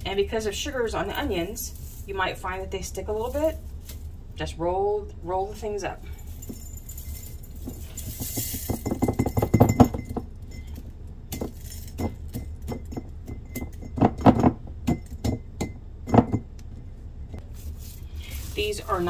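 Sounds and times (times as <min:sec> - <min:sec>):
dry pieces rattling into a glass jar: 0:00.9 - 0:02.2, 0:06.1 - 0:15.4, 0:17.6 - 0:19.0.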